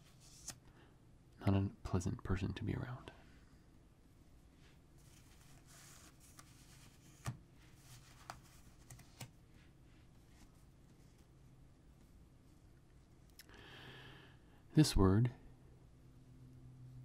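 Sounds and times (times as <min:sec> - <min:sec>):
paper cards sliding rustle: 0:00.0 - 0:00.6, 0:05.0 - 0:09.4.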